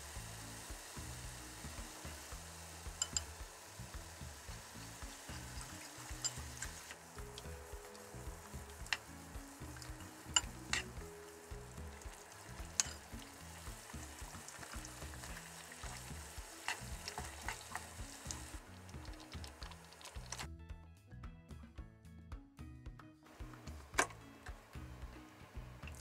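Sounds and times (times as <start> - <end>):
sauce simmering and bubbling: 0.0 - 20.5
chopsticks clicking against pan: 2.9 - 3.4, 5.1 - 9.1, 12.0 - 13.2, 13.8 - 18.4.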